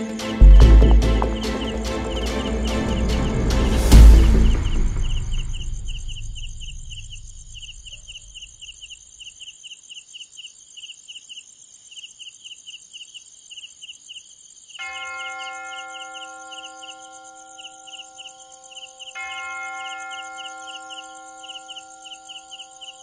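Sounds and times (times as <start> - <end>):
crickets chirping: 0.0 - 23.0
deep rumble from a hit: 0.4 - 8.4.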